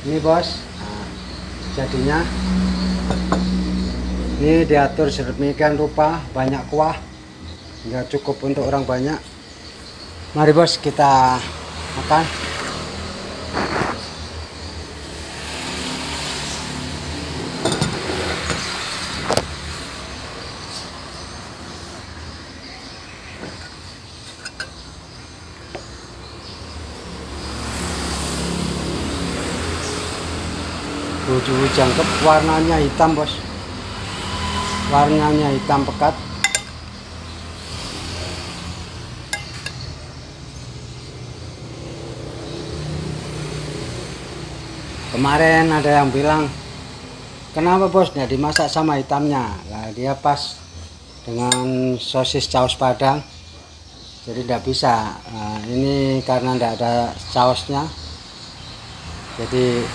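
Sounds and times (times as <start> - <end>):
road traffic hum: 0.0 - 59.9
tableware knocking on table: 17.6 - 18.1
sharp clink: 36.4 - 36.8, 39.3 - 39.9, 51.5 - 51.8.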